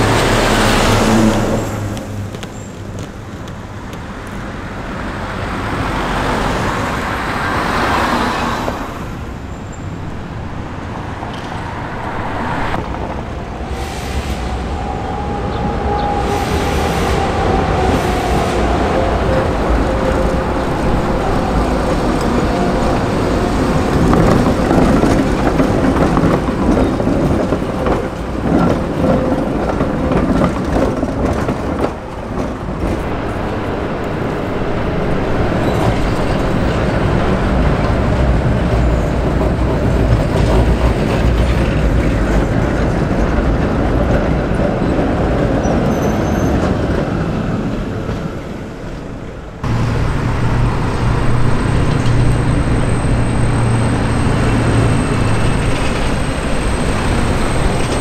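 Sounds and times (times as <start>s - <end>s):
tram wheels rumbling on rails: 0.0s - 58.0s
wheels clattering over rail joints: 14.4s - 58.0s.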